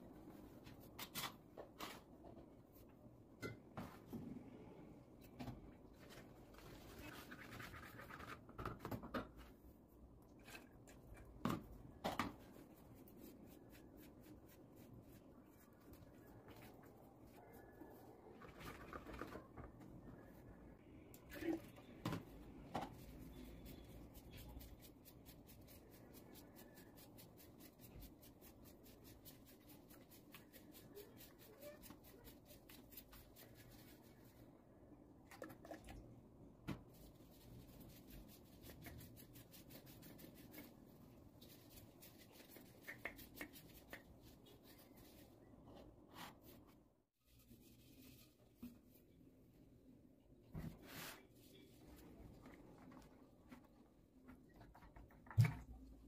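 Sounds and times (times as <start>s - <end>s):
hands rubbing a vase: 36.9s - 45.4s.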